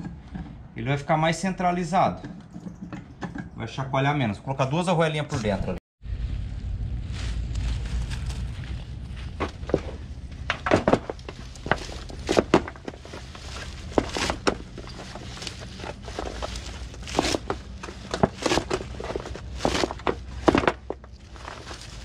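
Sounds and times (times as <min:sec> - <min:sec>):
low steady rumble: 0:05.4 - 0:22.0.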